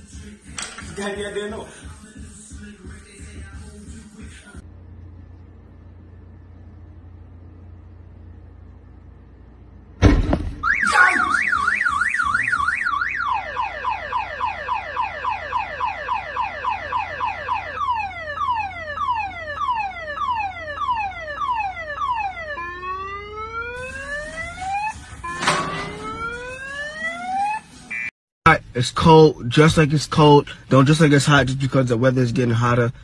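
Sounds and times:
short bang: 10.0s - 10.7s
car alarm: 10.5s - 28.1s.

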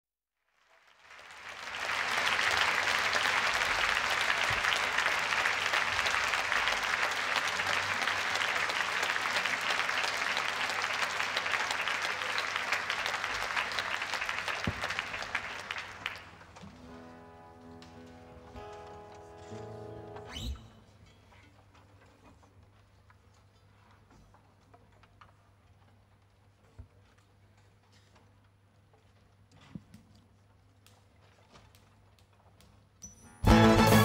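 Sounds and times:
audience applauding: 0.5s - 17.1s
held instrument notes: 33.4s - 34.0s.

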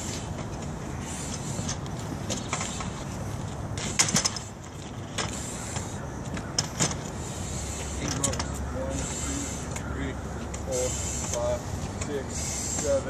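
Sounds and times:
metal ladder clanking and rattling: 3.8s - 5.4s.

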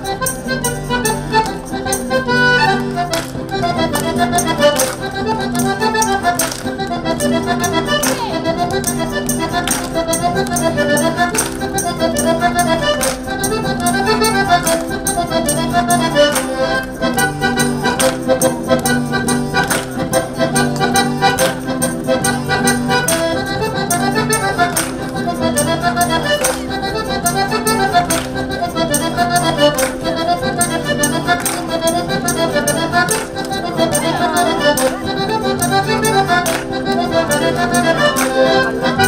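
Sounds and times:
accordion folk dance tune: 0.0s - 39.0s.

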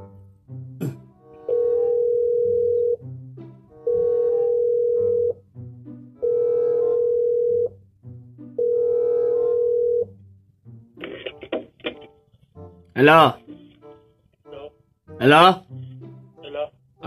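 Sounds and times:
music: 0.0s - 17.0s
telephone ringback tone: 1.4s - 3.0s, 3.8s - 5.4s, 6.2s - 7.8s, 8.6s - 10.1s.

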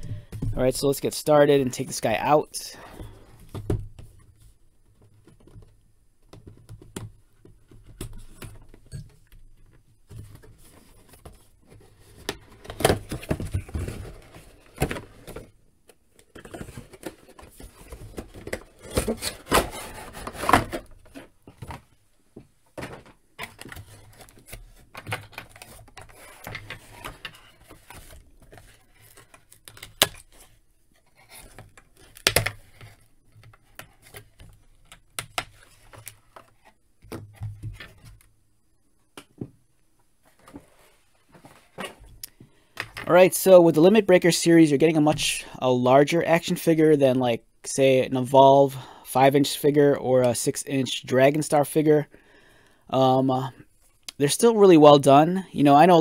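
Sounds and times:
cardboard and plastic packaging rustling: 9.5s - 22.0s, 22.7s - 38.2s.

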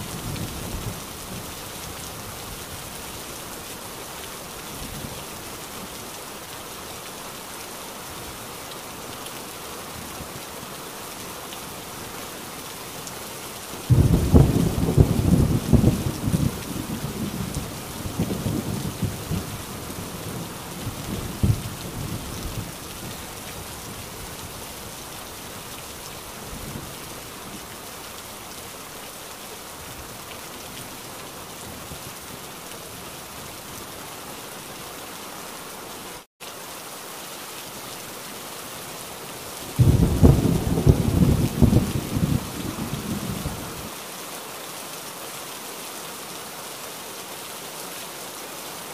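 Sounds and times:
heavy rain: 0.0s - 48.9s
thunder rumbling: 13.9s - 22.7s, 39.8s - 43.7s.

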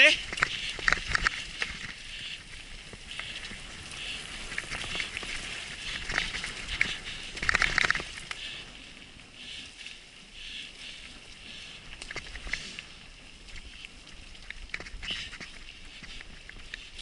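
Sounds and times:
tyres crunching over stones: 0.0s - 8.6s
bike rattling: 0.0s - 17.0s.

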